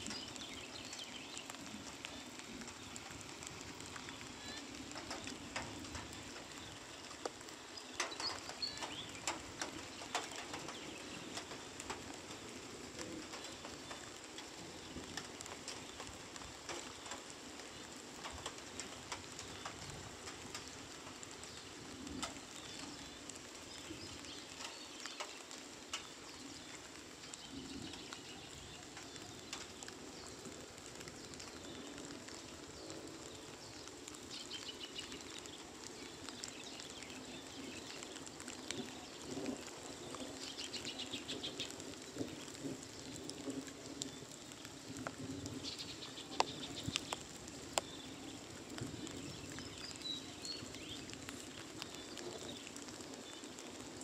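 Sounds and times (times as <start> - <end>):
birds calling: 0.0 - 16.1
light rain pattering: 0.0 - 54.0.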